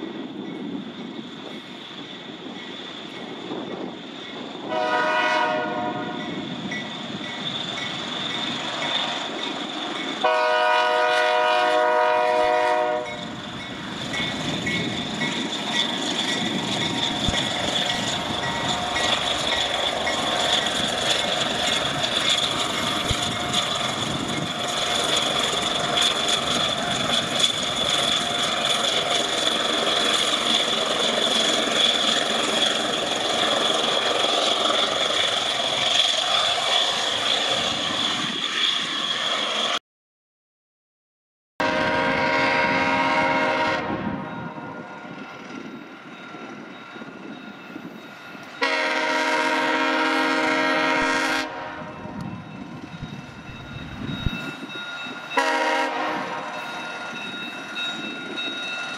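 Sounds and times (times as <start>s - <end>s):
locomotive engines rumbling: 0.1s - 39.8s, 41.7s - 58.9s
locomotive horn blast: 4.7s - 6.3s, 10.2s - 13.2s, 41.6s - 44.8s, 48.6s - 52.1s, 55.4s - 56.6s
wheel clatter on rail joints: 13.1s - 39.7s.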